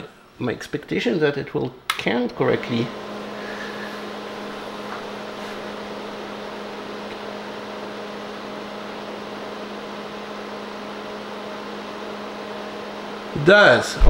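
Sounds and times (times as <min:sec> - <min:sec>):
electrical hum: 0:00.0 - 0:14.0
fan-like hiss: 0:00.0 - 0:14.0.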